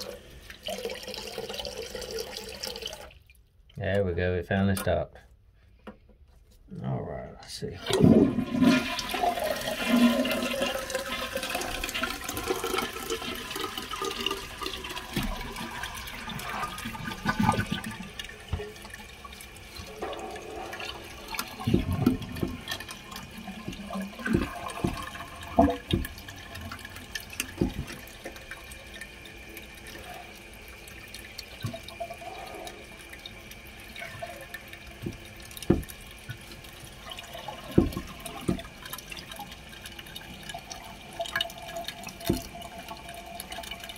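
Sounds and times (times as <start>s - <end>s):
toilet flushing: 0.0s - 3.3s, 7.6s - 43.9s
water running with steady hiss: 0.0s - 3.8s, 6.9s - 43.9s
knocks and clunks in toilet tank: 7.9s - 19.0s, 19.9s - 28.5s, 34.9s - 36.5s, 37.1s - 39.1s, 42.2s - 42.7s.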